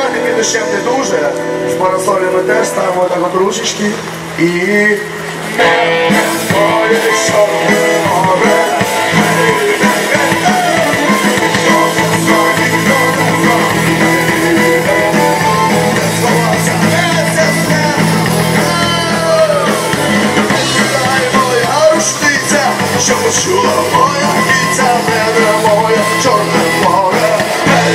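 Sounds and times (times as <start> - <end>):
live rock band playing: 0.0 - 27.9
man singing: 0.0 - 27.9.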